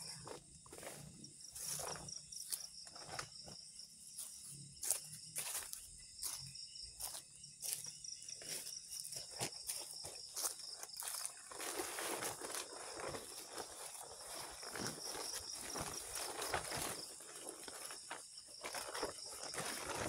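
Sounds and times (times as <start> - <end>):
footsteps and rustling in undergrowth: 0.0 - 20.0
forest insects chirring: 0.0 - 20.0.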